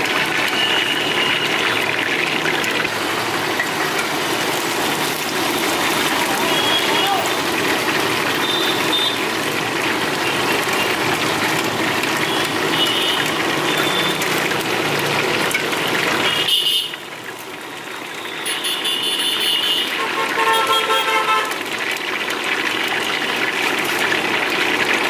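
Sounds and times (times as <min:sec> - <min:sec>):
traffic-like background hiss: 0:03.0 - 0:21.7.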